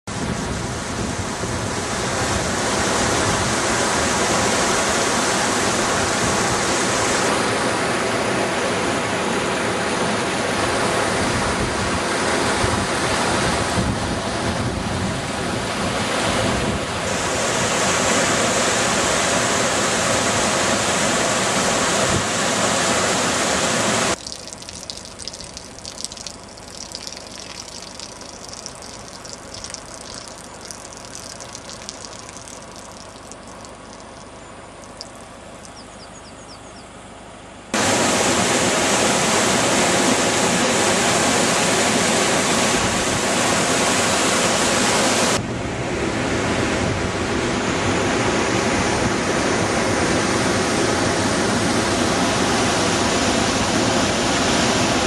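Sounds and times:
floodwater rushing: 22.4 - 35.8.

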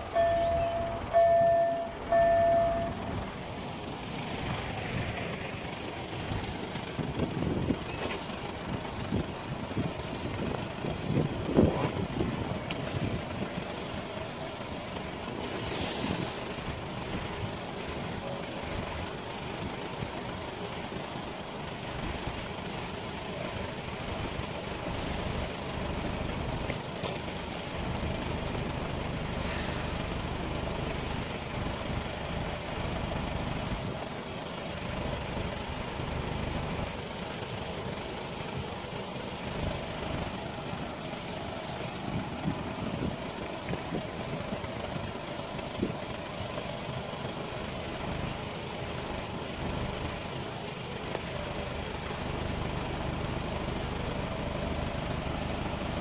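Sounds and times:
vehicle engines idling: 0.0 - 56.0
air brake hiss: 15.4 - 16.6, 24.9 - 25.6, 29.3 - 30.2.

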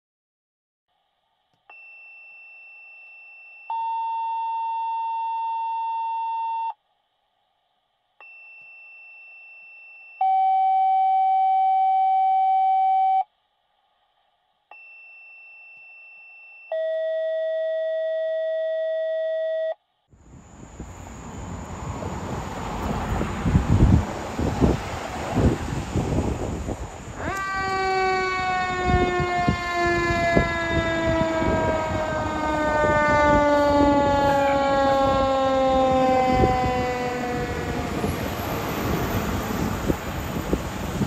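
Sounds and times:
two-tone pager alert: 1.7 - 6.8, 8.2 - 13.2, 14.7 - 19.8.

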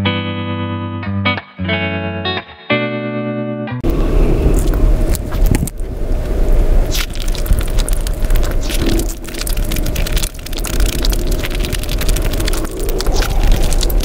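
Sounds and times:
wet crackles and small clicks: 4.5 - 14.0
fingers squishing rice: 6.9 - 14.0.

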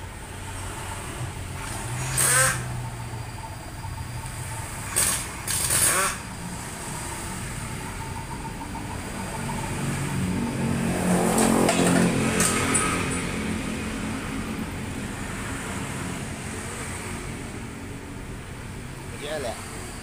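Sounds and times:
vehicle engine running: 0.0 - 20.0
metallic scrapes of engine parts: 4.8 - 6.2.

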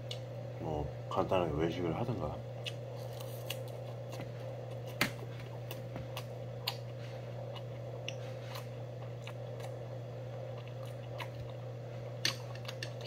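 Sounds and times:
steady low hum: 0.0 - 13.0
person chewing with wet mouth clicks: 5.7 - 9.8, 10.4 - 11.6.

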